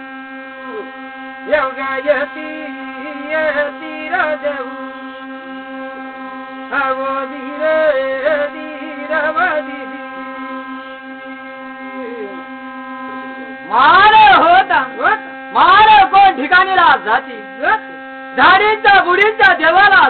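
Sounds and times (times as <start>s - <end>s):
brass plate humming drone: 0.0s - 20.0s
person chanting: 0.6s - 4.8s, 6.7s - 10.4s, 11.8s - 17.8s.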